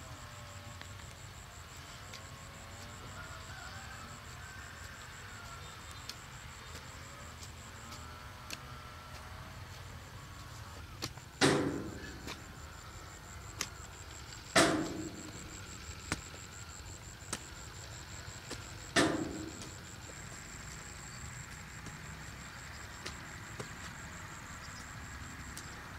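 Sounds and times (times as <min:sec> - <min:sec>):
high thin whine: 0:08.6 - 0:23.7
heavy strikes: 0:11.4 - 0:12.6, 0:14.6 - 0:15.8, 0:18.9 - 0:19.9.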